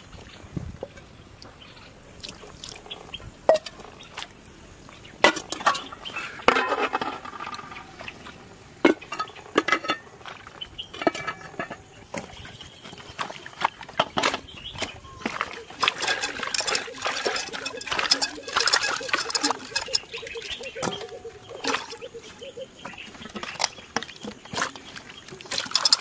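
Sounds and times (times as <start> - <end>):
hard objects clinking and knocking: 15.7 - 22.2, 25.5 - 26.0.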